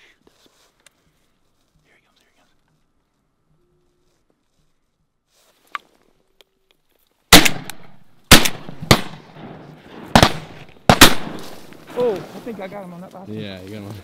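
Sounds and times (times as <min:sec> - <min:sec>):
shotgun blasts: 0:07.3 - 0:12.4.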